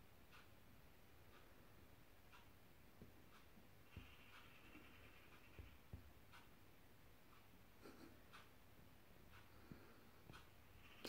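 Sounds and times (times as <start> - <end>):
faint background hum: 0.0 - 11.0.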